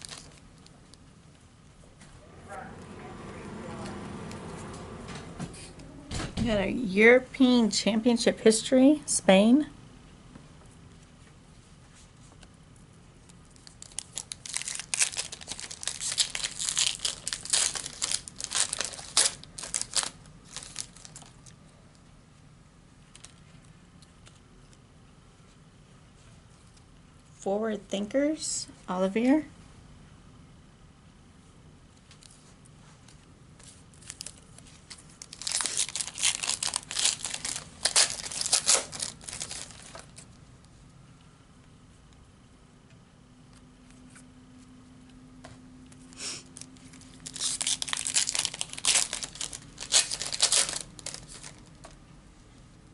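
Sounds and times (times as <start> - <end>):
foil wrapper tearing and crinkling: 0.0 - 0.8, 13.4 - 21.6, 33.6 - 40.3, 46.5 - 51.9.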